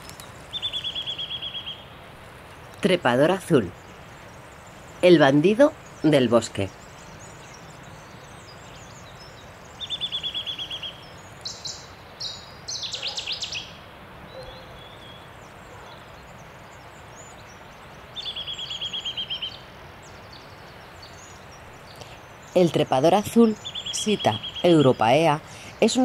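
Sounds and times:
faint bird chirping: 0:00.0 - 0:26.0
short high bird calls: 0:09.8 - 0:16.1.

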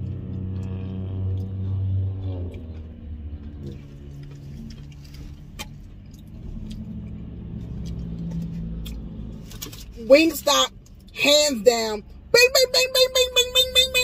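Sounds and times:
person chewing food: 0:00.0 - 0:09.9
steady low hum: 0:00.0 - 0:11.2.

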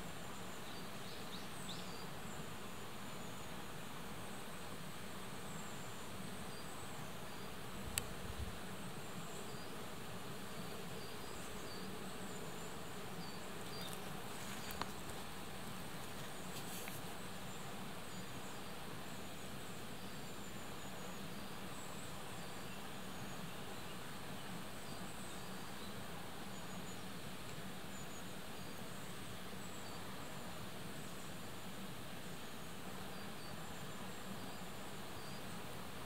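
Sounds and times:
insect buzzing: 0:05.0 - 0:23.4.

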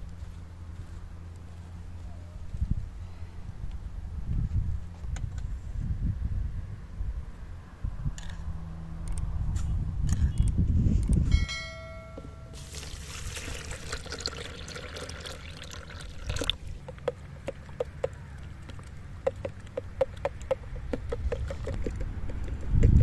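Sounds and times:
brief ringing tone: 0:11.3 - 0:12.6
liquid pouring: 0:12.6 - 0:16.7.

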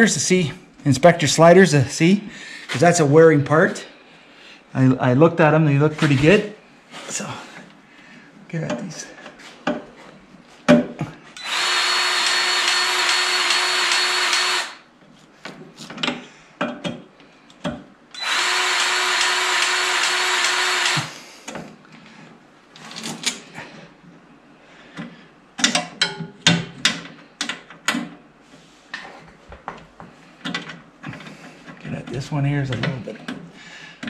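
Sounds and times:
grease gun motor running: 0:11.4 - 0:14.8, 0:18.2 - 0:21.1.

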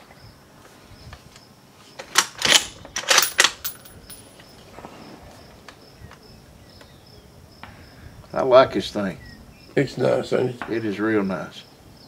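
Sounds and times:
faint insects chirping: 0:00.0 - 0:12.0
rifle bolt metallic clicks: 0:02.0 - 0:04.3.

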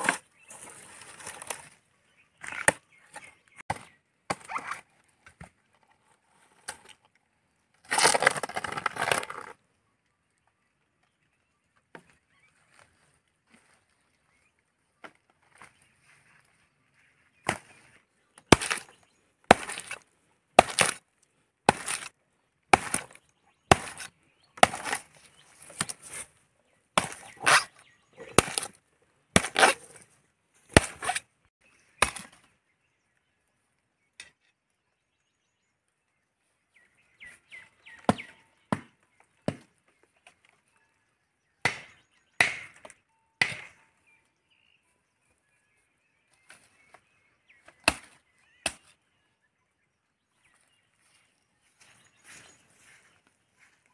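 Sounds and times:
machete chopping palm trunk: 0:18.5 - 0:18.9, 0:19.5 - 0:20.0, 0:20.6 - 0:21.0, 0:21.6 - 0:22.1, 0:22.7 - 0:26.2, 0:27.0 - 0:30.0, 0:30.7 - 0:31.3, 0:32.0 - 0:32.4, 0:38.0 - 0:39.7, 0:41.6 - 0:43.8, 0:47.7 - 0:48.9.

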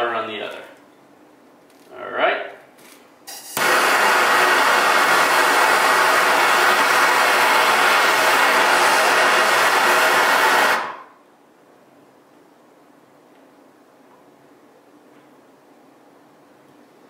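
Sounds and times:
torch flame hissing: 0:03.3 - 0:11.1
gas torch igniting: 0:03.3 - 0:11.2.

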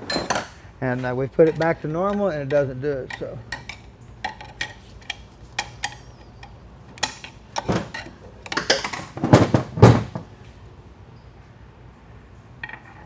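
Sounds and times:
rough scraping handling noises: 0:00.0 - 0:10.6
metal pick tool clicking on metal: 0:01.5 - 0:07.4.

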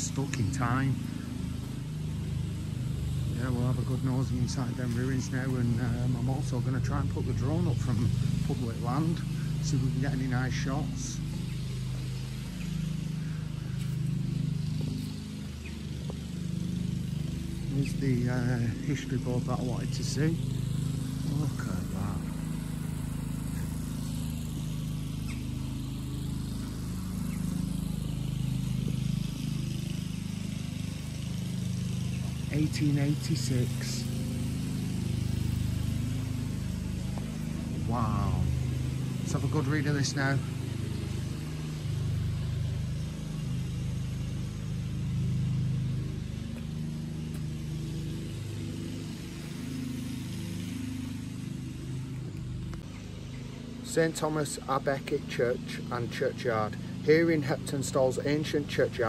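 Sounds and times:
low engine hum: 0:00.0 - 0:59.0.

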